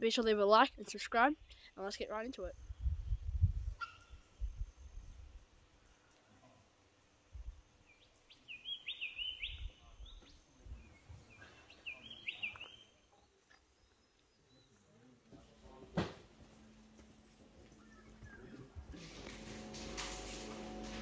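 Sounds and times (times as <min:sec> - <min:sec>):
low rumbles on microphone: 0:02.5 - 0:03.8
bird calling rising notes: 0:17.2 - 0:19.4.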